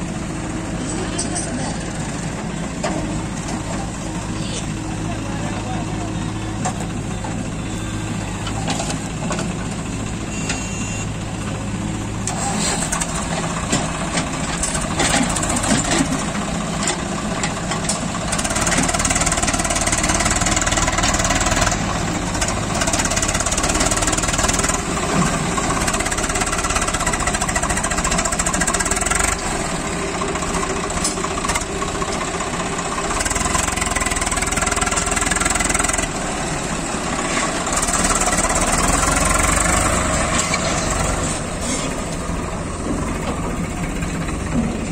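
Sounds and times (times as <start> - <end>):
diesel engines running: 0.0 - 44.9.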